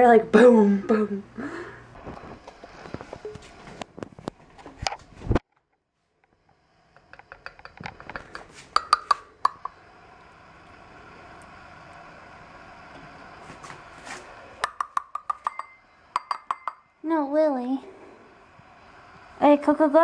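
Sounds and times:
faint steady hiss: 6.0s - 20.0s.

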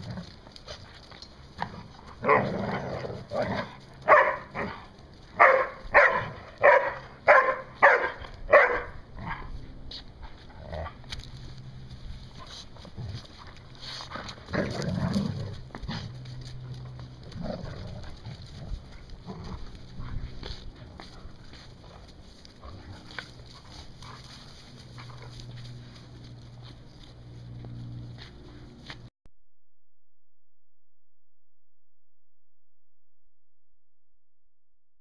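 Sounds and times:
dog growling: 1.6s - 3.8s, 14.0s - 16.2s
dog play-barking: 1.6s - 9.5s.

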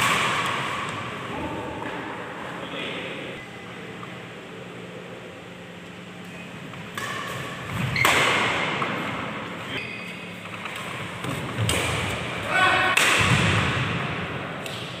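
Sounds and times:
rackets hitting shuttlecock: 0.0s - 1.2s, 6.9s - 9.3s, 10.2s - 15.0s.

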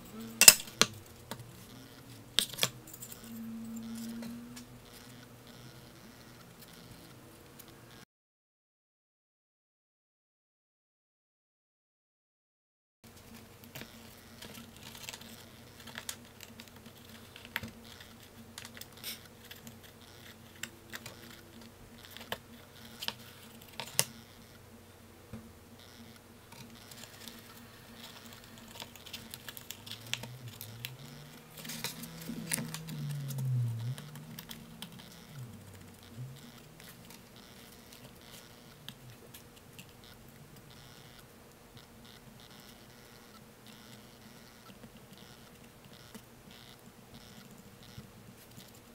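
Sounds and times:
steady low hum: 0.0s - 8.0s, 13.1s - 48.9s
rising and falling low tone: 30.0s - 36.8s.

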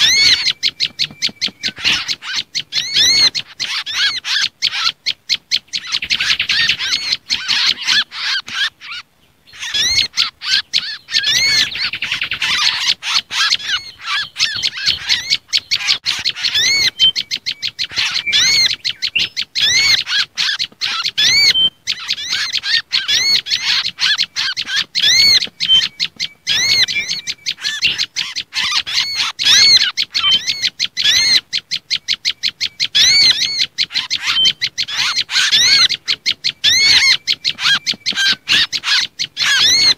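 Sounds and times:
songbirds chirping: 0.0s - 39.9s
bird whistled notes: 9.6s - 39.9s.

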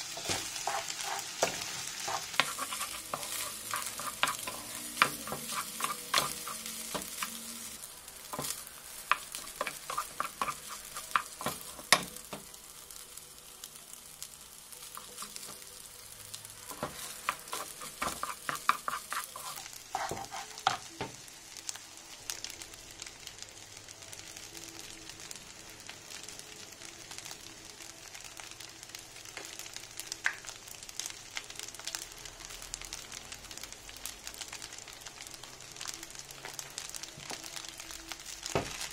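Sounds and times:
rice sizzling in a pan: 0.0s - 38.9s
spatula scraping a pan: 0.1s - 7.6s, 8.4s - 12.0s, 16.7s - 20.9s.

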